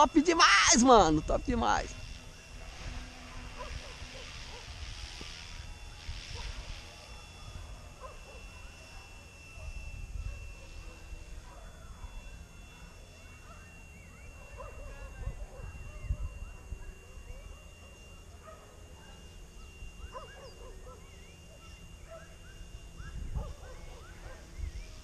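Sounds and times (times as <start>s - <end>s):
rc helicopter whine: 0.0s - 25.0s.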